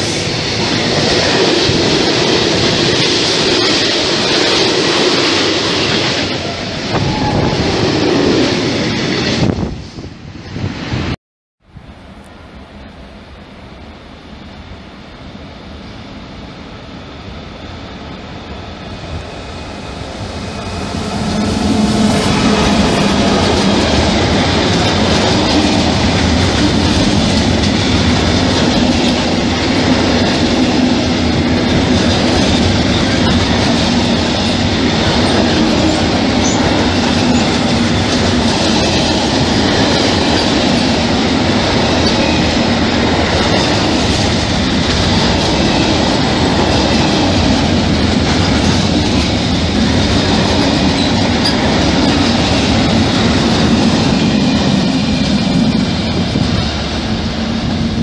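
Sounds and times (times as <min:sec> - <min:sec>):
freight train rolling rumble: 0:00.0 - 0:58.0
rail clatter: 0:19.9 - 0:58.0.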